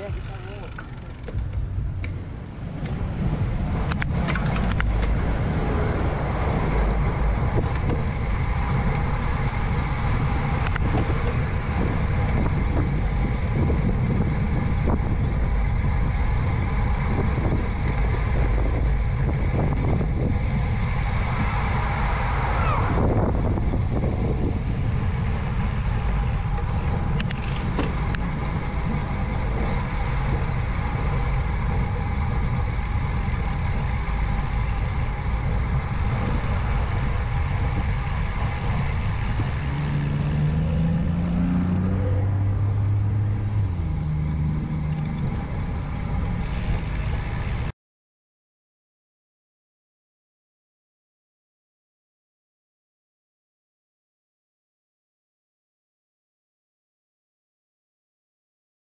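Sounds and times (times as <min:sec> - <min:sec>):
bicycle tyre noise: 0:00.0 - 0:47.7
wind rushing over microphone: 0:01.4 - 0:47.7.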